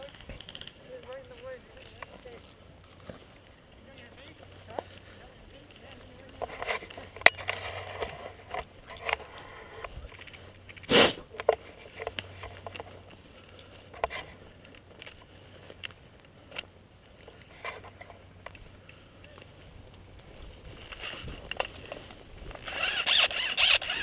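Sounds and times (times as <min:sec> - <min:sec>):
gear clicks and knocks: 0:00.0 - 0:05.0, 0:20.7 - 0:24.0
footsteps through brush: 0:00.0 - 0:24.0.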